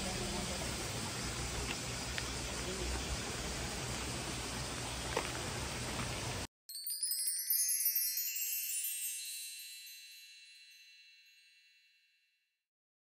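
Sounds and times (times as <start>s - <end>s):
shimmering bell-like chime: 6.7s - 12.6s.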